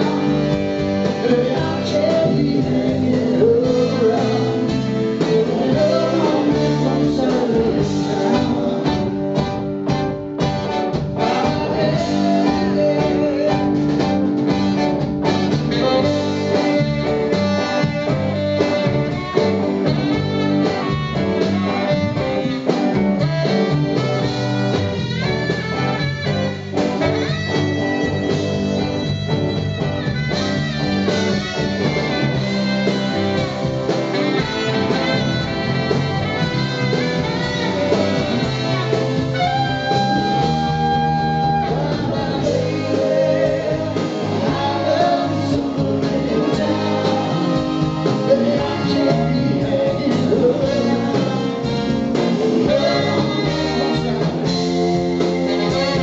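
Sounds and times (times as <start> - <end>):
lead vocal: 0.0 - 10.0, 11.1 - 22.7, 30.8 - 56.0
saxophone solo: 0.0 - 56.0
soul-rock band playing: 0.0 - 56.0.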